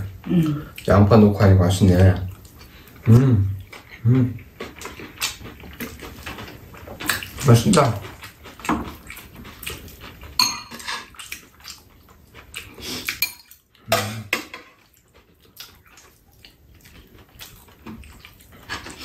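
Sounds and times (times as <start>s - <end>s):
utensils clinking on ceramic bowls: 10.4s - 11.2s, 13.2s - 14.8s.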